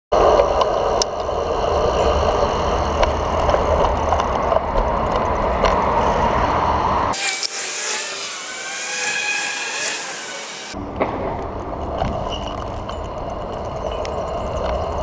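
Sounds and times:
wind rumbling on microphone: 0:00.1 - 0:07.2, 0:10.8 - 0:15.0
road traffic noise: 0:00.1 - 0:15.0.

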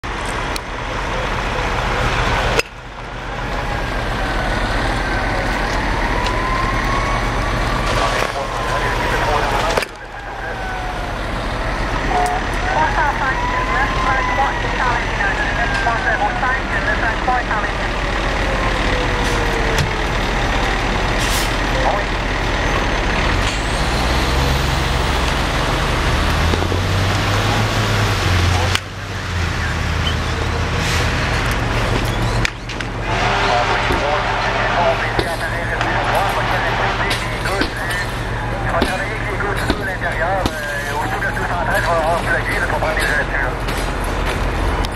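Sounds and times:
diesel engine rumbling: 0:00.0 - 0:44.9
siren wailing: 0:03.2 - 0:23.1, 0:33.0 - 0:43.6.

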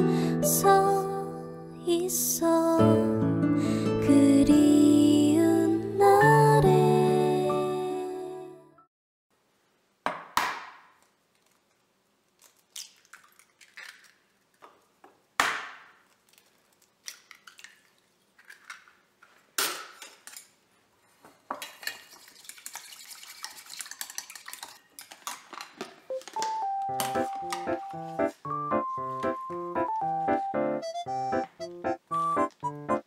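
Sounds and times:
eggs cracking on metal bowl: 0:12.4 - 0:14.8, 0:15.4 - 0:19.0
eggs beaten in metal bowl: 0:21.7 - 0:25.2.

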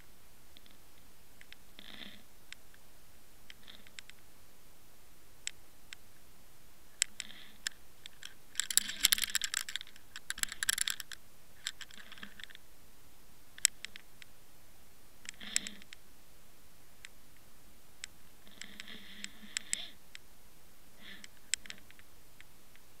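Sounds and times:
sharp underwater clicks: 0:03.5 - 0:04.2, 0:07.0 - 0:12.6, 0:13.6 - 0:14.4.

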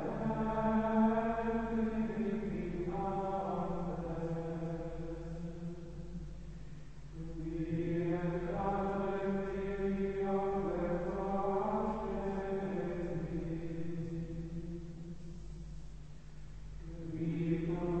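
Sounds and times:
men singing plainchant in unison: 0:07.2 - 0:14.0, 0:16.9 - 0:18.0.

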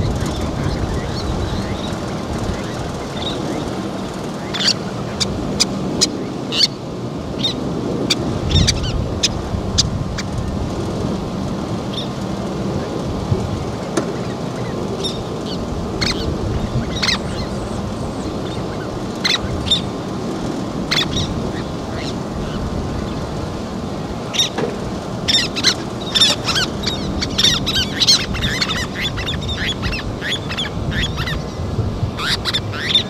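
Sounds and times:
terns calling: 0:00.0 - 0:33.0.

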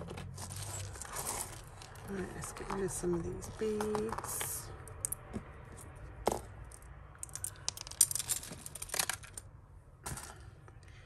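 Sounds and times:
beads clicking and clinking: 0:00.4 - 0:10.4.

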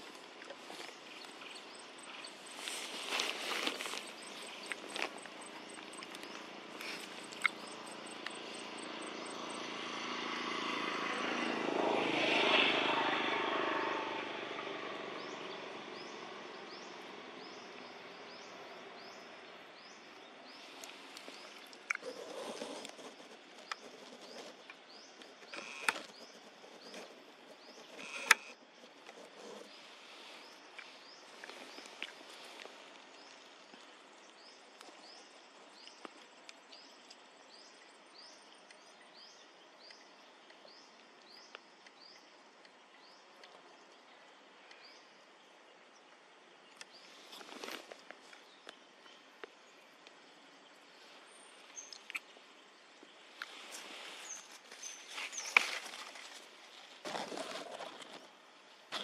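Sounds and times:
bird chirping: 0:00.0 - 0:10.2, 0:45.9 - 0:56.4
faint outdoor background noise: 0:00.0 - 0:59.0.

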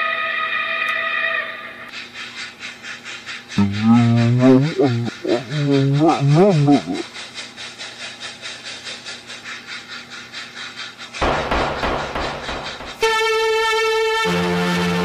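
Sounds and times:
train wheels clattering over rails: 0:06.6 - 0:13.6.

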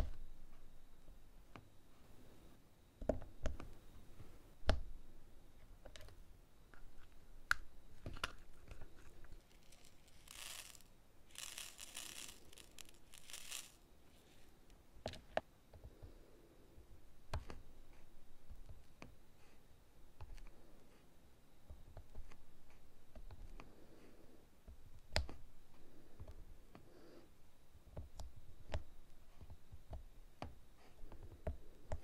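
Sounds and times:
beads rattling in plastic tray: 0:08.3 - 0:14.4.

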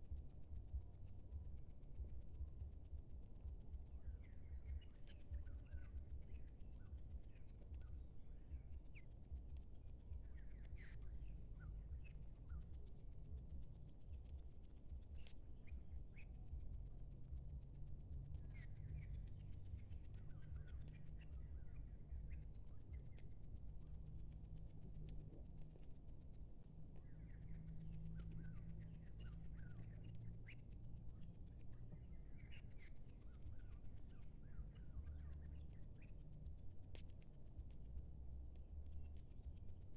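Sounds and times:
insect pulsed trill: 0:00.0 - 0:39.9
steady low rumble: 0:00.0 - 0:39.9.

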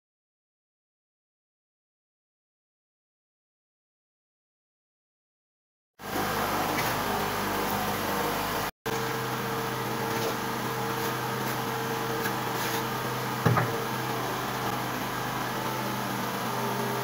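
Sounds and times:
machine-like hum: 0:06.0 - 0:17.0
knock: 0:13.4 - 0:13.8.

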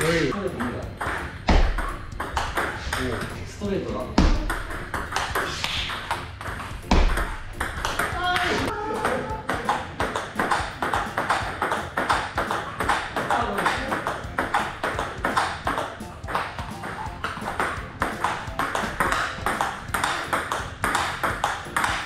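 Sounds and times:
ball clicking off paddles: 0:00.4 - 0:22.0
ball bouncing on table: 0:00.6 - 0:03.4, 0:04.2 - 0:22.0.

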